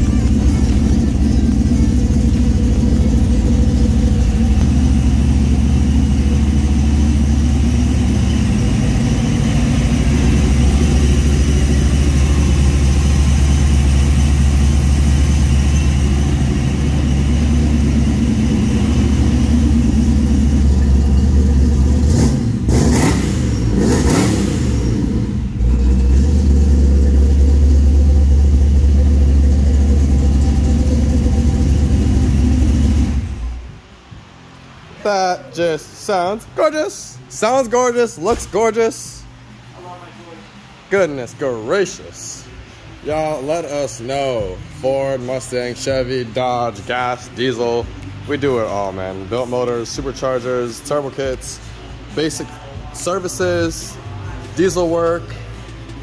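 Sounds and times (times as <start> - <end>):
vehicle engine idling: 0.0 - 34.8.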